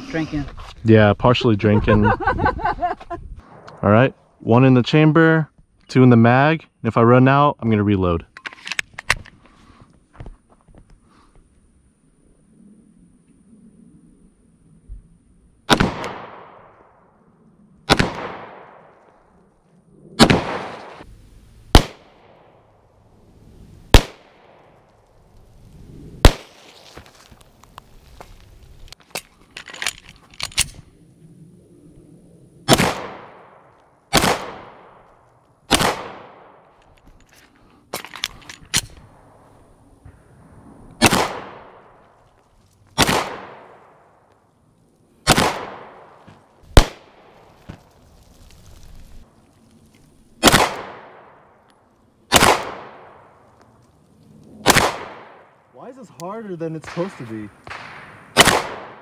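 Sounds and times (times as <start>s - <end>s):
fainter gunshot cracks: 20.2s - 21.0s, 32.7s - 33.4s, 34.1s - 34.8s, 35.7s - 36.3s, 41.0s - 41.6s, 43.0s - 43.6s, 45.3s - 46.0s, 50.4s - 51.2s, 52.3s - 53.1s, 54.6s - 55.4s, 56.8s - 59.0s
handgun shots echoing: 56.8s - 59.0s.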